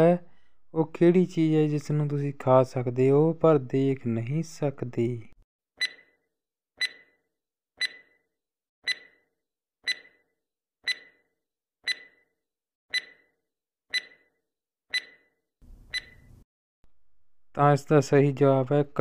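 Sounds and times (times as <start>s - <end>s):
countdown timer tick-beeps: 5.8s - 6.0s, 6.8s - 7.1s, 7.8s - 8.2s, 8.9s - 9.2s, 9.9s - 10.2s, 10.9s - 11.2s, 11.9s - 12.2s, 12.9s - 13.3s, 13.9s - 14.3s, 14.9s - 15.3s, 16.0s - 16.2s.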